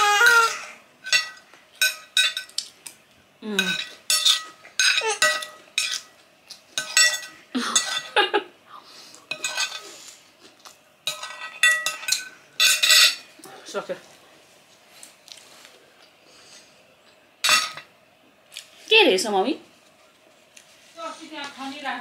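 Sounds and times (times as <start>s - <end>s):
cutlery clinking on plate: 1.0s - 2.7s, 3.6s - 6.1s, 6.8s - 8.2s, 9.3s - 9.8s, 11.1s - 13.3s, 17.4s - 17.9s.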